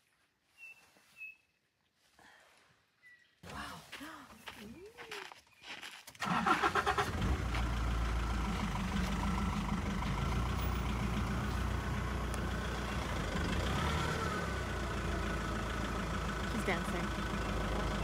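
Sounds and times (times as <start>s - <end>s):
vehicle engine cranking and idling: 6.2s - 18.0s.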